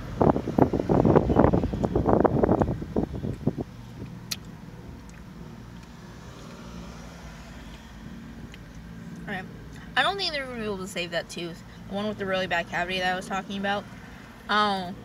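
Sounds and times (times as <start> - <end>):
low steady background hum: 6.8 - 15.0.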